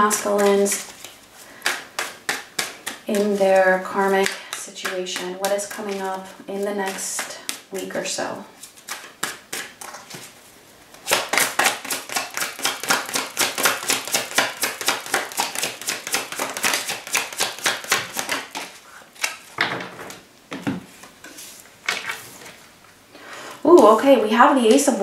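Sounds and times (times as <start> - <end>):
cards being shuffled: 0.1 - 7.6, 8.6 - 19.6.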